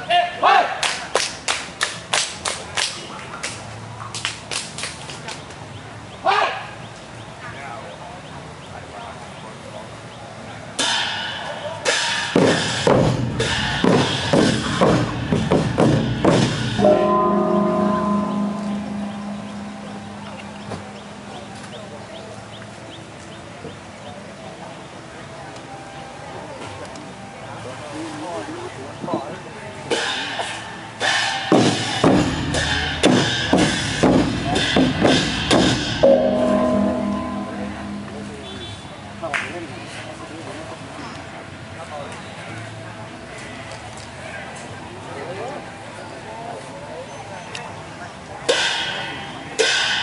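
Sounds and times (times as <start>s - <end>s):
gongs and drums ensemble: 10.8s - 22.5s, 29.9s - 40.0s, 48.5s - 50.0s
small cymbals: 16.0s - 22.6s, 29.9s - 39.8s
bright metallic crash: 16.4s - 22.0s, 31.0s - 39.6s.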